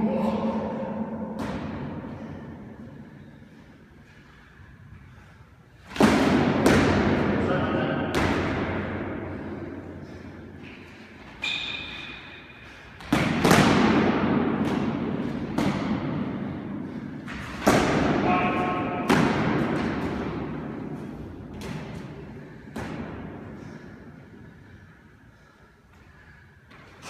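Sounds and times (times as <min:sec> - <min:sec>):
practice swords striking with echo: 0:05.8 - 0:10.8, 0:11.5 - 0:24.2
shoes squeaking on floor: 0:11.4 - 0:12.2.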